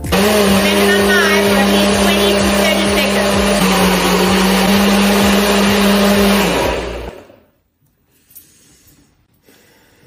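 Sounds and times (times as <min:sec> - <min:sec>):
blender motor running: 0:00.0 - 0:07.4.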